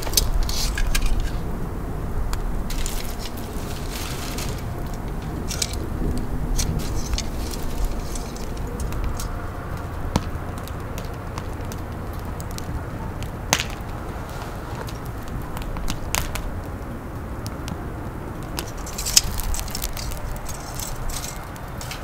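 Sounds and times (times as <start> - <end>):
fire crackles and pops: 0.0 - 22.0
wood fire burning: 0.0 - 22.0.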